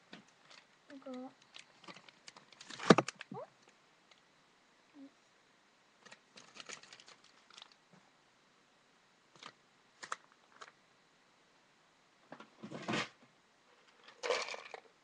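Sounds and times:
packet crinkling: 1.4s - 3.3s, 6.0s - 7.8s.

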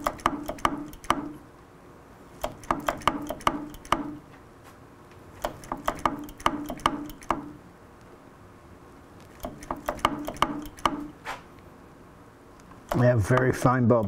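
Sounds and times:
knocks and clicks at brake caliper: 0.0s - 1.4s, 9.4s - 11.1s.

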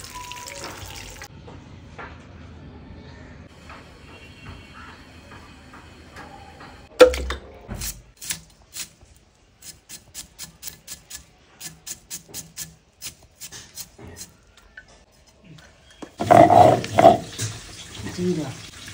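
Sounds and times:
knife slicing onion: 7.8s - 9.0s, 9.6s - 14.4s.

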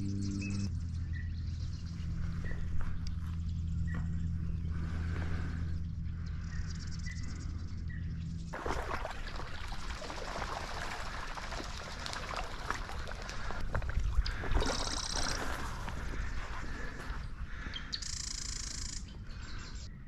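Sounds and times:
steady low hum: 0.0s - 20.0s
water sloshing: 8.5s - 17.0s.

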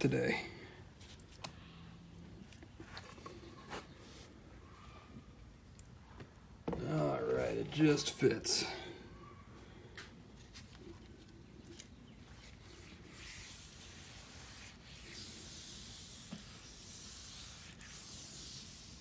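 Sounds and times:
wooden board rubbing in oil: 12.7s - 19.0s.

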